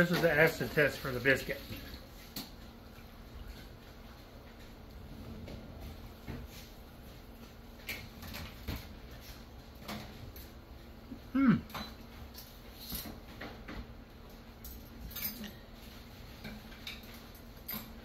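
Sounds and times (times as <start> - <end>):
person humming mm: 11.3 - 11.7.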